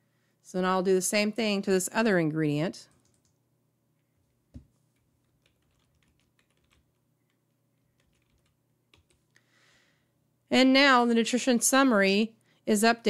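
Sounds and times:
typing on computer keyboard: 0:02.9 - 0:03.4, 0:05.2 - 0:09.3.

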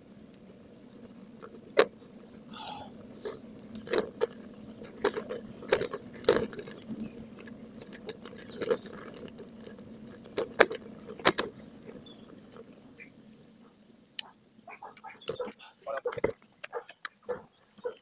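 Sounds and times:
bicycle rattling: 0:00.0 - 0:18.0
tyres rumbling on concrete: 0:01.4 - 0:12.8.

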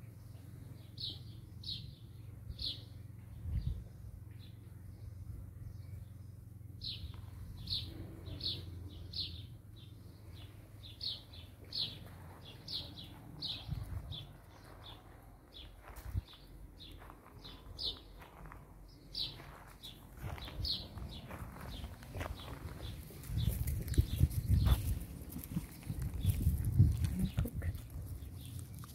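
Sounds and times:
small bird chirping: 0:00.3 - 0:28.9
faint scuffing on gravel: 0:11.7 - 0:27.1.

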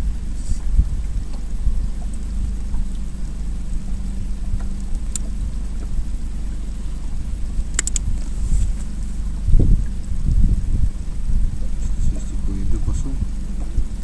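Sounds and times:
boat motor humming: 0:00.0 - 0:14.0
sharp clicks: 0:07.7 - 0:08.1.

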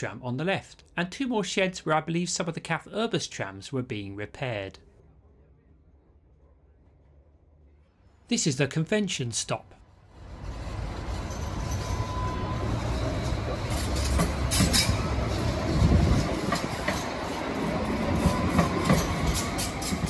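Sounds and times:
tram passing rumble: 0:09.8 - 0:20.0.

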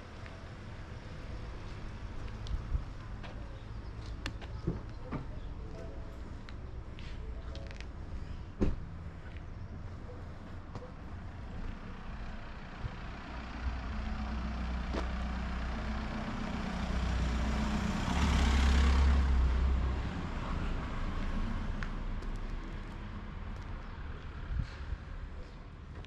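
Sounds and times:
vehicle engine hum driving past: 0:08.3 - 0:25.8.

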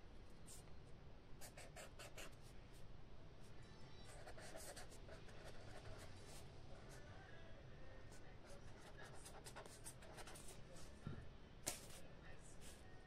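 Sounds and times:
pen scratching on paper: 0:01.4 - 0:02.4, 0:04.1 - 0:06.9, 0:08.4 - 0:10.6.

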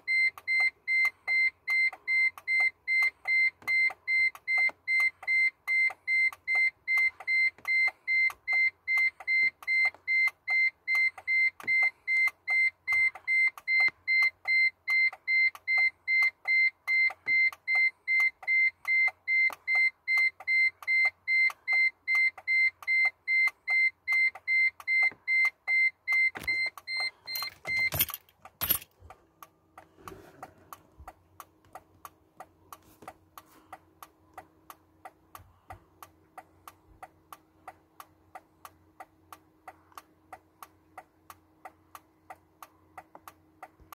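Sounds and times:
car warning chime beeping: 0:00.0 - 0:43.9
faint ticking: 0:29.0 - 0:43.9.

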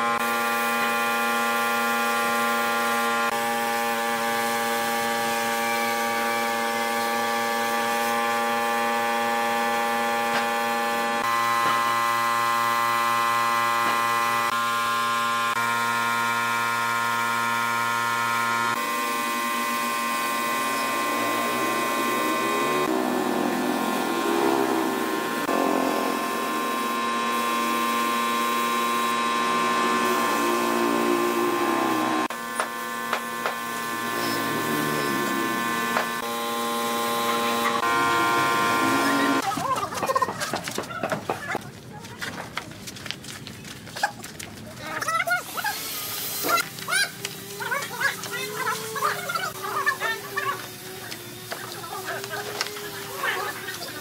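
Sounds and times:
air compressor motor hum: 0:00.0 - 0:39.5, 0:45.6 - 0:54.0
spray gun hissing: 0:18.9 - 0:39.4.

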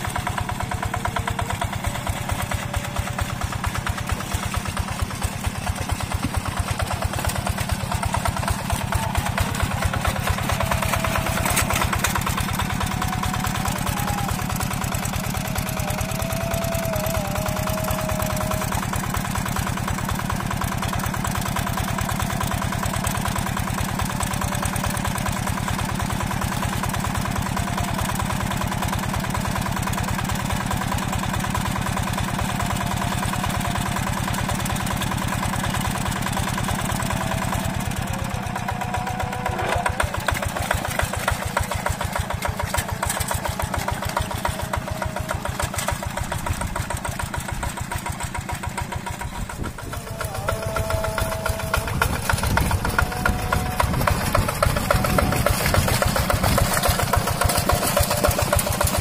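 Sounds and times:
single-cylinder diesel engine running: 0:00.0 - 0:59.0.

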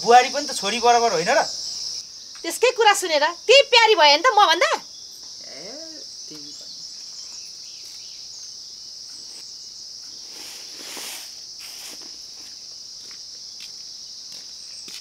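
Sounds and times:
insects chirring: 0:00.0 - 0:15.0
rustling: 0:10.1 - 0:12.6.

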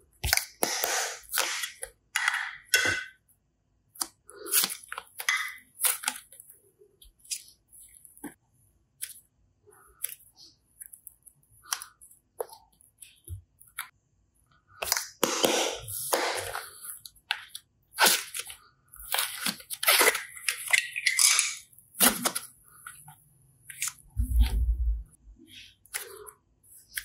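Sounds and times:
slime squishing and crackling: 0:14.8 - 0:23.0
low thump: 0:24.2 - 0:25.2.

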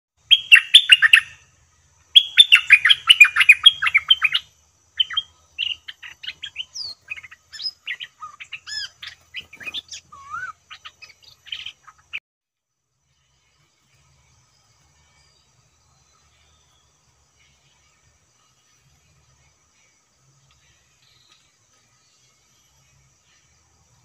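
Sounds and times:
bulbuls singing: 0:00.2 - 0:12.2, 0:14.4 - 0:24.0.

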